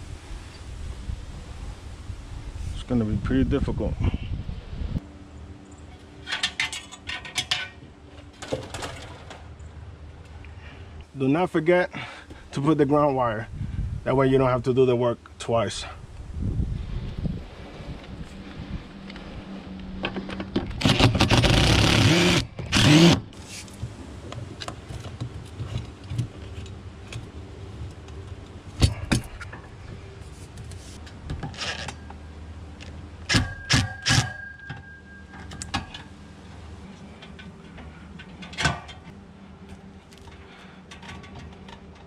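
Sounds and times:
impact driver driving screw: 20.8s - 23.2s
tool handling knocks and clicks: 32.8s - 36.2s, 37.0s - 42.0s.

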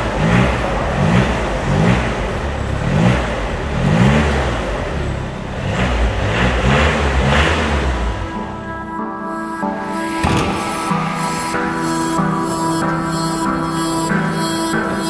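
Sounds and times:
diesel engine revving: 0.0s - 9.1s.

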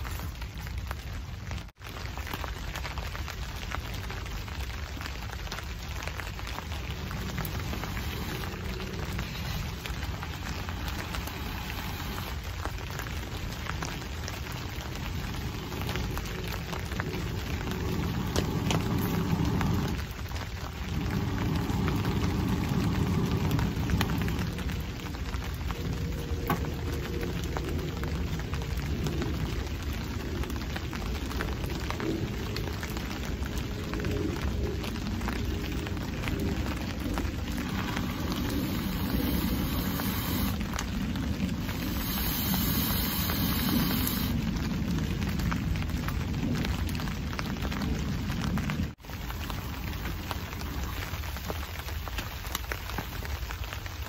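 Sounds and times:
rain pattering on a tarp: 0.0s - 54.0s
blowing through a pipe: 5.5s - 29.8s, 35.0s - 44.8s.

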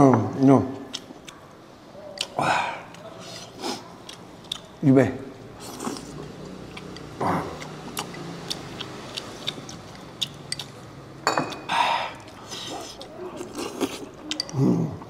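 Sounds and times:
noisy slurp: 11.6s - 14.6s.

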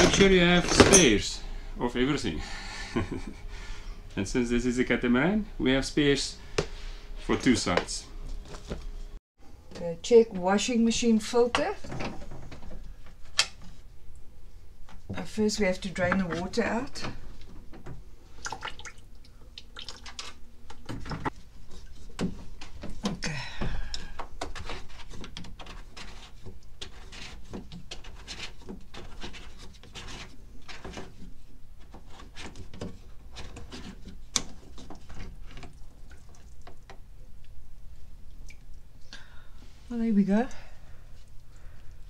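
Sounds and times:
water trickling and dripping: 18.4s - 20.3s, 35.7s - 37.6s.

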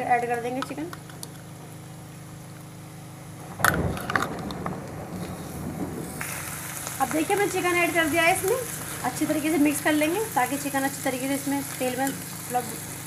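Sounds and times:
steady sizzling: 0.0s - 13.0s
meat splashing into hot oil: 6.1s - 9.2s.

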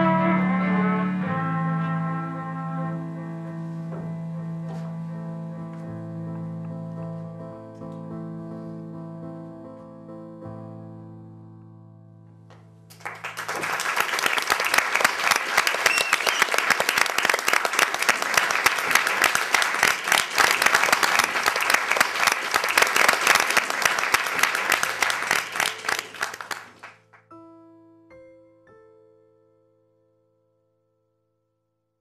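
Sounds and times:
audience applauding: 12.9s - 27.2s.

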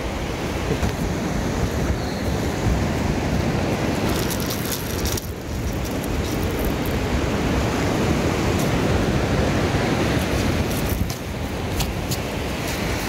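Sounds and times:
surf washing: 0.0s - 13.0s
wind buffeting microphone: 0.6s - 13.0s
light clicks and rustles: 4.0s - 7.0s, 10.6s - 12.2s.

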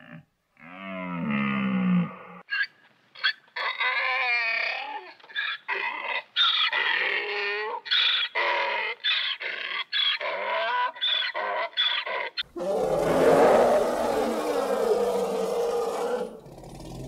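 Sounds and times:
donkey braying: 8.0s - 17.0s.

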